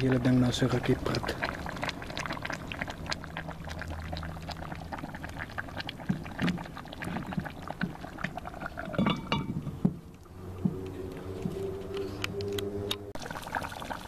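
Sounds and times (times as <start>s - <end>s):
stew bubbling with small pops: 0.0s - 12.6s, 13.2s - 14.0s
cast-iron lid clinking: 8.8s - 9.8s.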